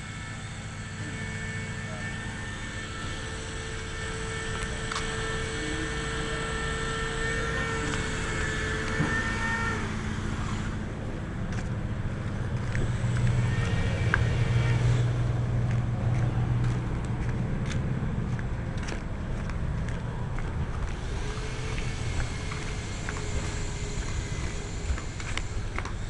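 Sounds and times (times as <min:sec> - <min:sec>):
compressor buzzing: 0:00.0 - 0:26.0
high steady whine: 0:00.0 - 0:26.0.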